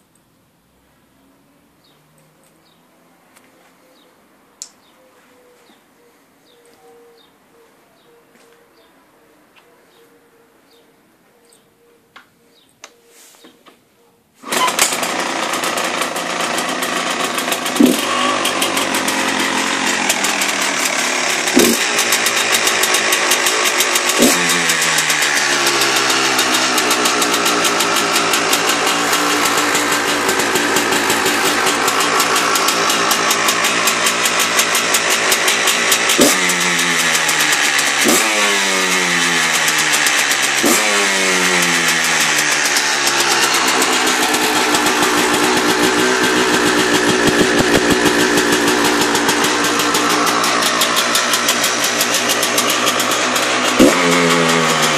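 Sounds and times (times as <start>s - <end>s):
motorcycle engine revving: 14.4s - 54.9s.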